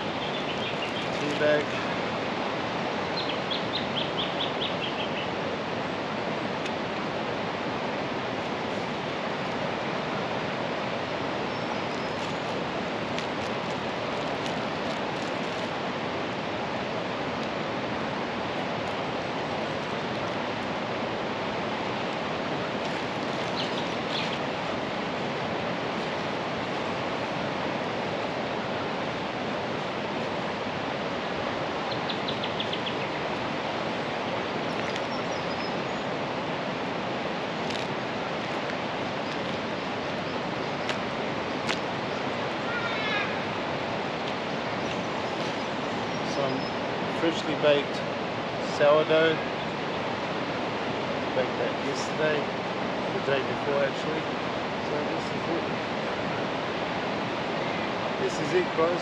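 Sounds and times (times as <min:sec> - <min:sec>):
bird chirping: 0:00.0 - 0:01.2, 0:03.1 - 0:05.3, 0:23.4 - 0:24.6, 0:31.8 - 0:33.3, 0:34.7 - 0:36.1
river rushing: 0:00.0 - 0:59.0.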